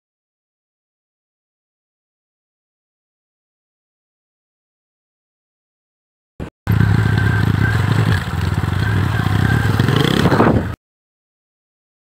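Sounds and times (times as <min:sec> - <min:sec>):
motorcycle engine running: 0:06.7 - 0:10.8.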